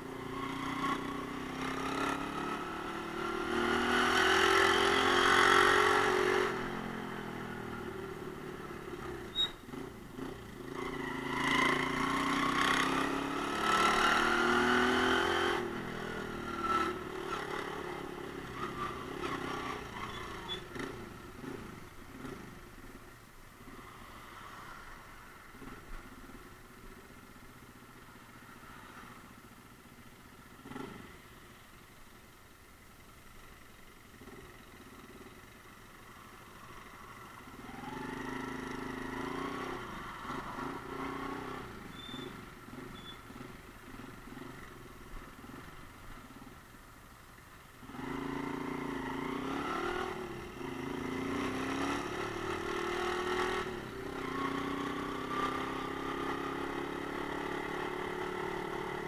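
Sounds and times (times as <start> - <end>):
motorcycle engine revving: 0.1 - 22.6, 36.0 - 46.5, 47.8 - 59.0.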